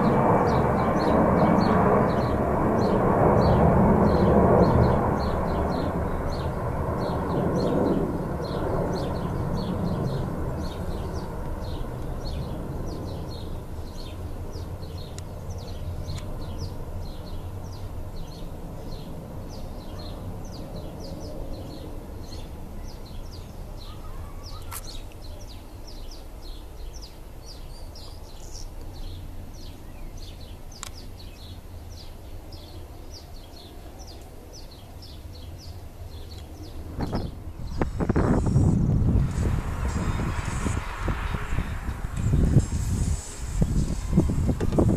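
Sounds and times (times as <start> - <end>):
low jet rumble: 0.0 - 44.9
bird chirping: 0.4 - 38.6.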